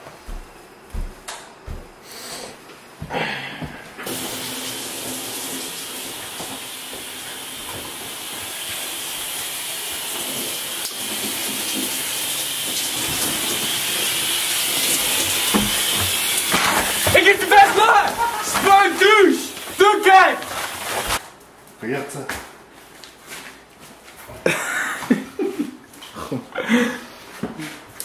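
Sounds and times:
shower water spray: 4.0s - 21.2s.

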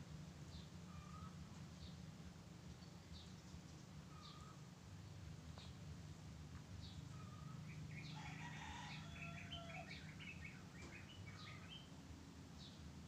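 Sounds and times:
low steady hum: 0.0s - 8.2s
faint birds chirping: 0.0s - 13.0s.

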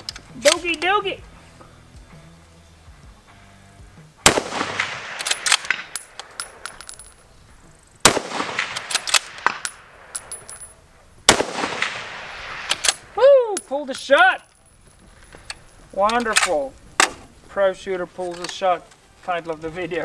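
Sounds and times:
rifle shots with echo: 4.2s - 7.1s, 8.0s - 10.6s, 11.3s - 13.1s
rifle bolt clicks: 5.1s - 7.1s, 8.6s - 10.7s, 15.4s - 17.2s.

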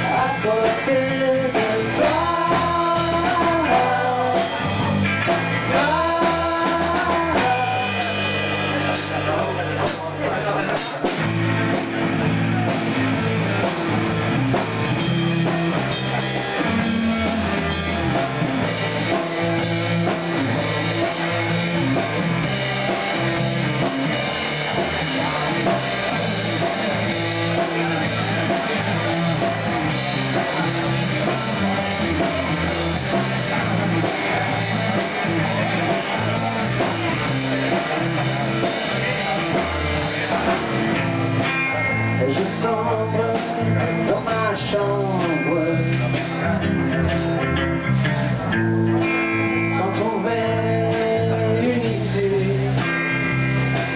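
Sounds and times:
electric bass guitar: 0.0s - 53.9s
electric guitar: 0.0s - 53.9s
drum beat: 0.5s - 10.1s, 10.7s - 41.6s.

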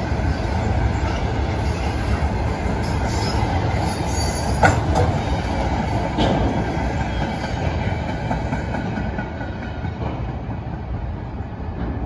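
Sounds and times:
train wheels rumbling on rails: 0.0s - 12.0s
wheels clicking over rail joints: 3.8s - 5.2s.

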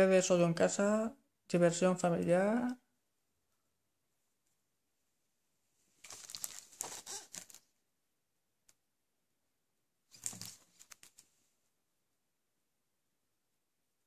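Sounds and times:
plastic wrap crinkling: 6.0s - 7.7s, 10.1s - 11.3s.

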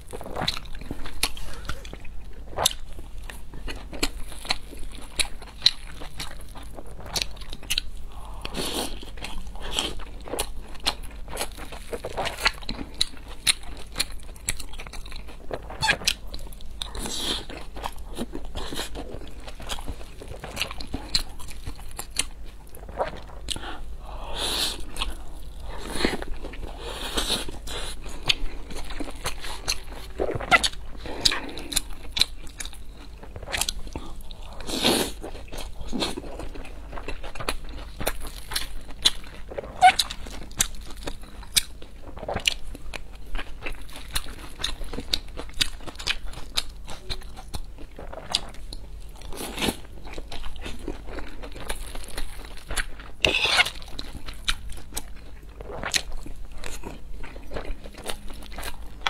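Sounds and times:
chewing with crunches: 0.0s - 59.0s.

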